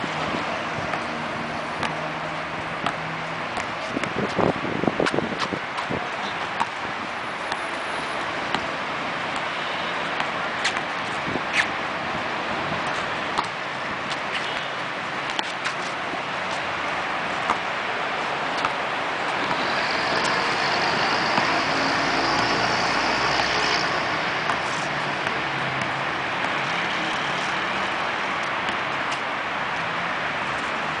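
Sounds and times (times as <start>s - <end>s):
road traffic noise: 0.0s - 31.0s
vehicle passing: 19.2s - 28.4s.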